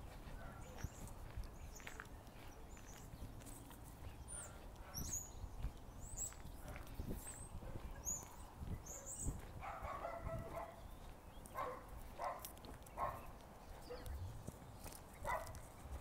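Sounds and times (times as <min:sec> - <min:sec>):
soft footsteps: 0:00.0 - 0:16.0
dog barking: 0:00.4 - 0:00.9, 0:04.4 - 0:05.2, 0:07.6 - 0:08.1, 0:08.9 - 0:10.9, 0:11.5 - 0:14.2, 0:15.2 - 0:15.6.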